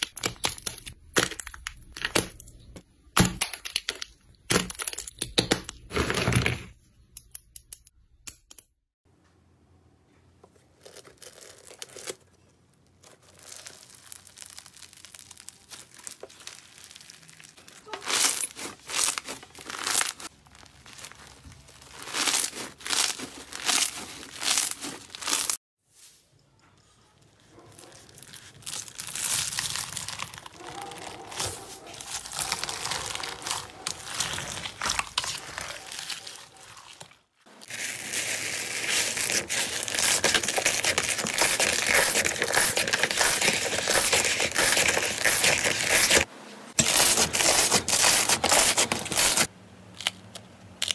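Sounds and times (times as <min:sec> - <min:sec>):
slime crackling squishes: 0:00.0 - 0:05.4, 0:10.7 - 0:25.6, 0:27.2 - 0:46.3
dried clay crunching: 0:10.6 - 0:50.9.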